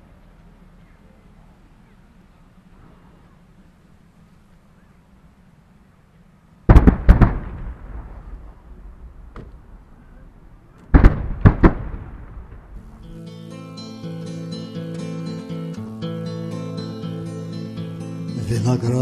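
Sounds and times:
fireworks bursting: 6.7 - 13.2
guitar music: 12.7 - 19.0.

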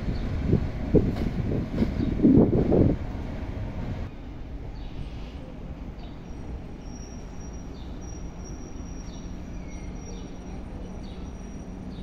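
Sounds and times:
freight train rumbling: 0.0 - 12.0.

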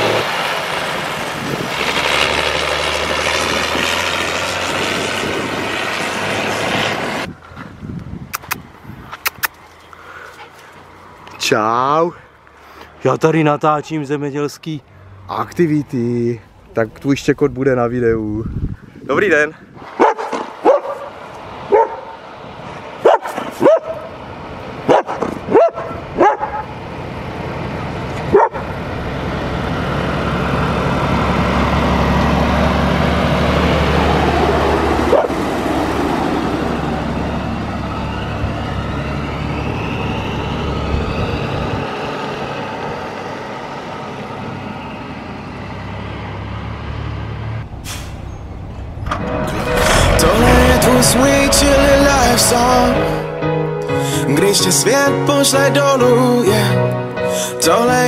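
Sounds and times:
truck diesel engine passing: 0.0 - 7.8, 8.4 - 18.0, 19.8 - 58.0
dog barking: 20.0 - 22.2, 23.0 - 24.1, 24.9 - 26.7, 28.3 - 28.7, 35.1 - 35.4.

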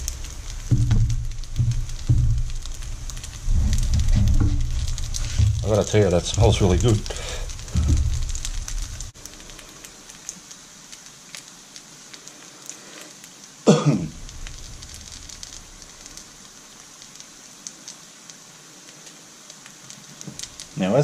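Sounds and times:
food sizzling in a pan: 0.0 - 21.0
man clearing his throat: 13.7 - 14.1.

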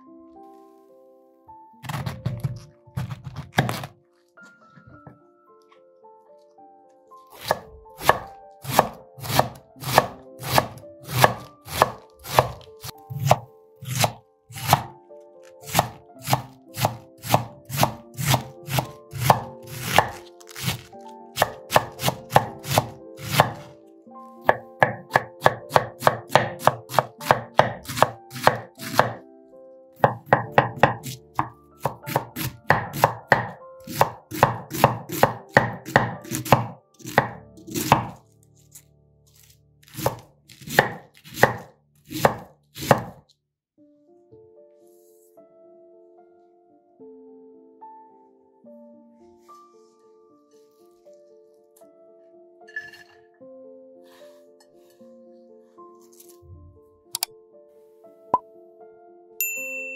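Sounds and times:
knife chopping cabbage on board: 1.8 - 4.0, 7.3 - 23.8, 24.4 - 29.2, 30.0 - 43.2, 56.0 - 56.4.

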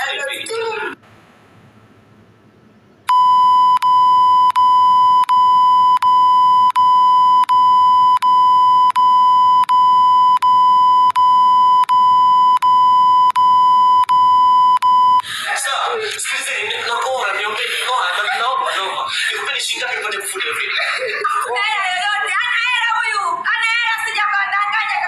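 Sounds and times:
electronic censor bleep: 3.1 - 15.2.

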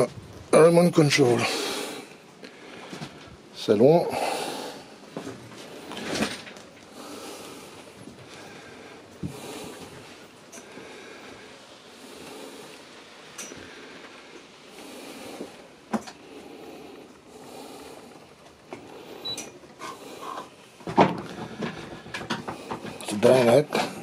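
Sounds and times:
faint background noise: 0.0 - 24.0
sharp clicks and knocks: 20.8 - 23.6.

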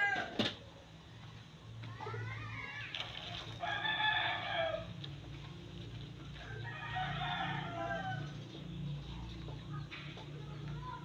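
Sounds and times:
rooster crowing: 0.0 - 0.4, 3.6 - 5.0, 6.4 - 8.4.

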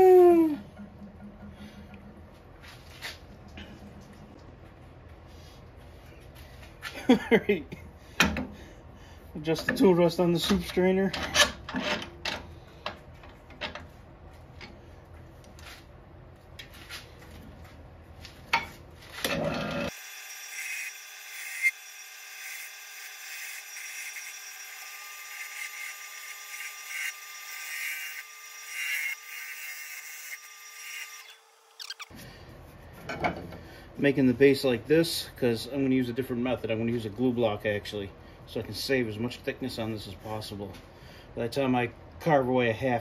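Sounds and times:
lathe tool cutting wood: 19.9 - 31.8.

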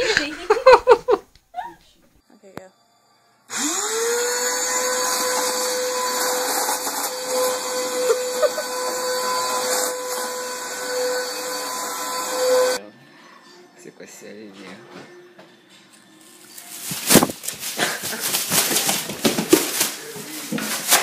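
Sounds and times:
vacuum cleaner motor whine: 3.5 - 12.8.

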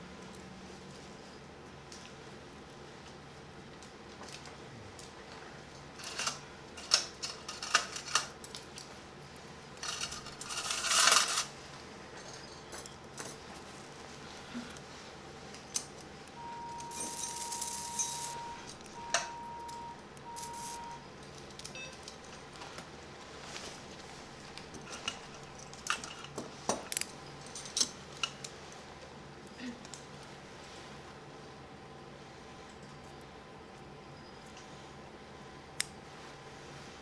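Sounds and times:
steady electronic tone: 16.4 - 21.1
steel instruments clicking and clinking: 16.7 - 19.8.

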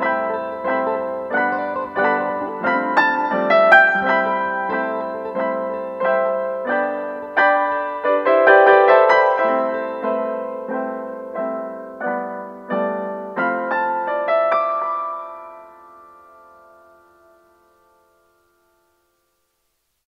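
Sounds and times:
soft piano chords: 0.0 - 19.4.

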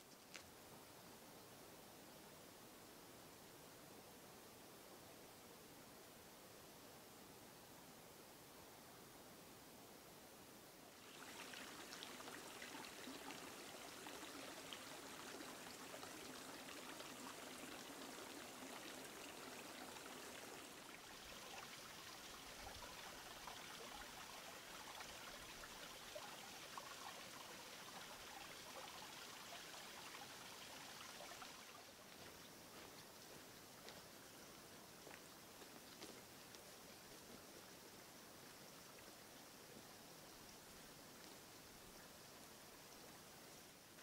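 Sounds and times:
stream trickling: 10.9 - 44.0.

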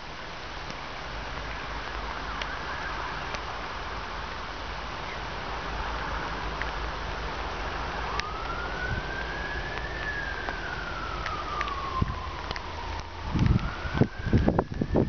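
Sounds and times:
background rush: 0.0 - 15.0
siren wailing: 1.6 - 3.4, 7.6 - 15.0.

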